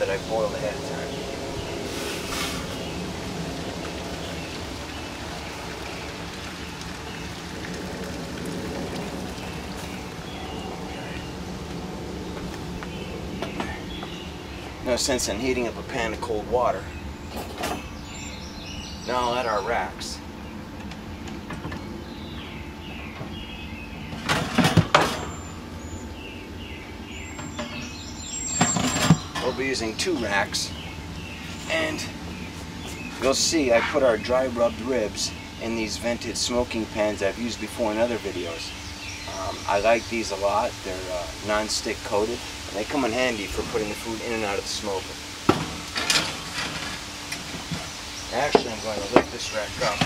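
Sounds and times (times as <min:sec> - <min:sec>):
water pouring from a kettle: 0:03.6 - 0:10.3
wire rack rattling and clattering: 0:45.5 - 0:47.9.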